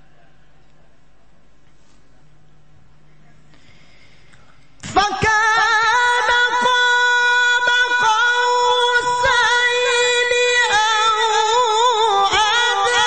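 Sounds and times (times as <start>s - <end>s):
man chanting a long note: 4.8s - 13.0s.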